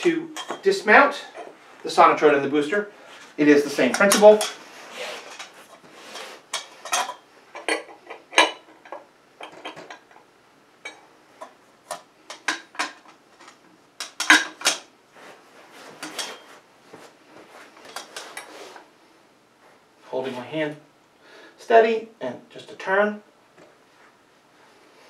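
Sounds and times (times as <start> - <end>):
wrenches clanking against metal: 0.3 - 1.5, 3.8 - 4.6, 5.2 - 10.2, 14.0 - 14.8, 16.0 - 16.5.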